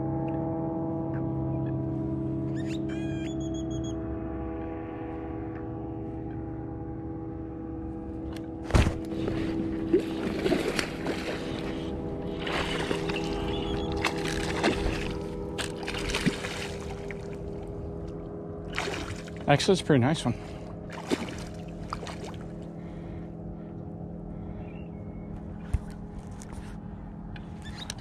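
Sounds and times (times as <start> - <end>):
fish splashing in water: 9.9 - 17.5, 18.7 - 19.4, 20.9 - 22.6.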